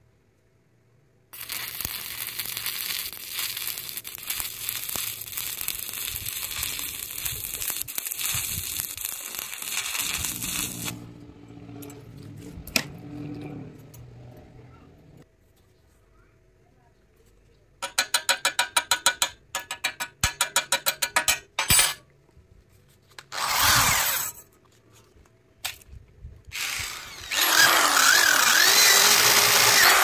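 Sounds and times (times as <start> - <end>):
crackling welding arc: 1.4 - 11.1.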